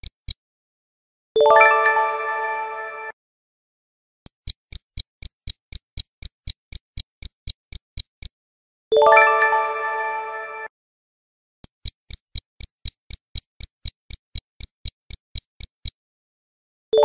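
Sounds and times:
stopwatch ticking: 0:00.0 - 0:00.4, 0:04.3 - 0:08.4, 0:11.6 - 0:16.0.

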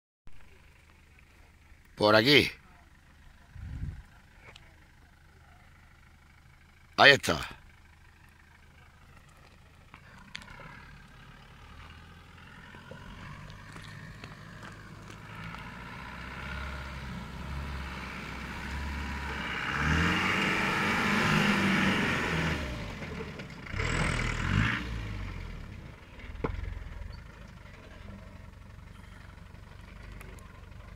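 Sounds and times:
diesel engine revving: 0:03.2 - 0:30.9
tyres crunching on gravel: 0:08.2 - 0:17.7.

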